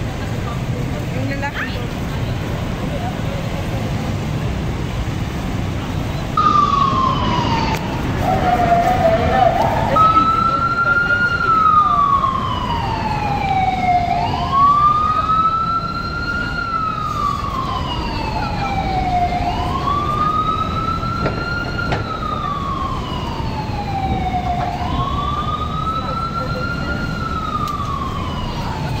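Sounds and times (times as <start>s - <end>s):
siren wailing: 6.4s - 29.0s.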